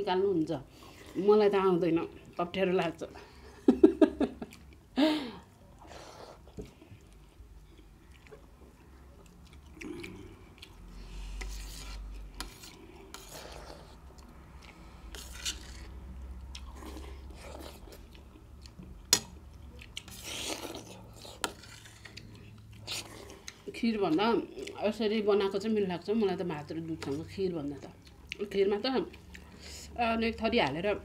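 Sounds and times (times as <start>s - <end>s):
chewing: 5.7s - 24.8s, 27.0s - 29.6s.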